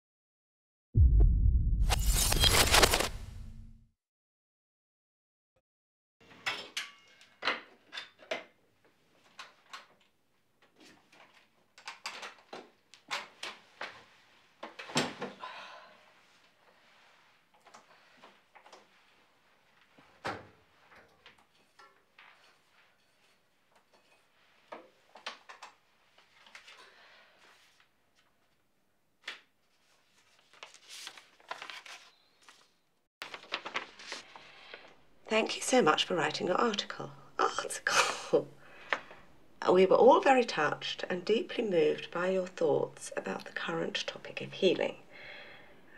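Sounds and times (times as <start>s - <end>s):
paper rustling: 2.0s - 3.5s, 29.6s - 34.9s.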